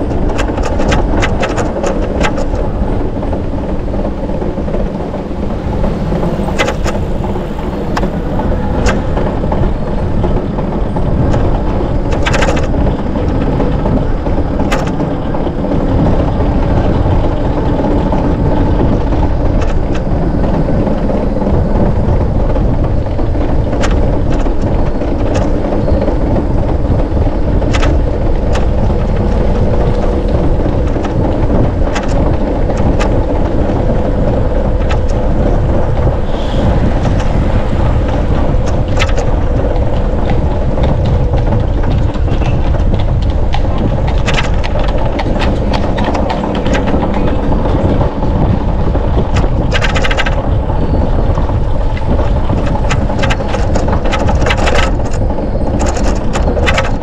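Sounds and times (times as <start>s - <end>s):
bicycle road noise: 0.0s - 57.0s
wind on microphone: 0.0s - 57.0s.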